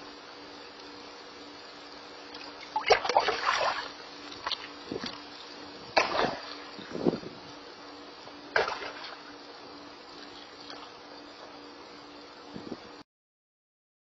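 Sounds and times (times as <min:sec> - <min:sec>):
faint steady hum: 0:00.0 - 0:13.0
fish splashing at surface: 0:08.6 - 0:09.2.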